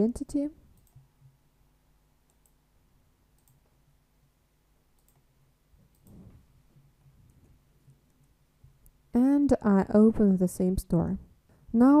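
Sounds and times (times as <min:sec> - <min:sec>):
computer clicks: 0:00.8 - 0:01.1, 0:02.3 - 0:02.6, 0:03.4 - 0:03.7, 0:05.0 - 0:05.3, 0:05.9 - 0:06.3.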